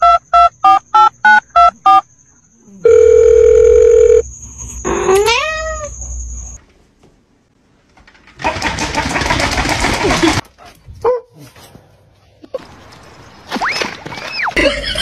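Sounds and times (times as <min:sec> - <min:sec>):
long steady dial tone beep: 0:00.0 - 0:02.0, 0:02.8 - 0:04.2
telephone keypad beeps: 0:00.0 - 0:02.0
cat meowing: 0:05.1 - 0:05.9.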